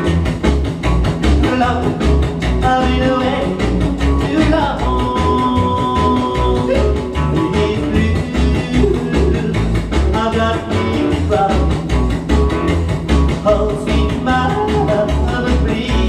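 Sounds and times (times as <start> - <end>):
rockabilly band with singer: 0.0 - 16.0.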